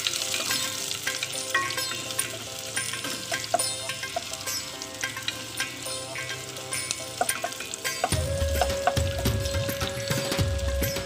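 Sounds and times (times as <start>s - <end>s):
garlic sizzling in oil: 0.0s - 11.0s.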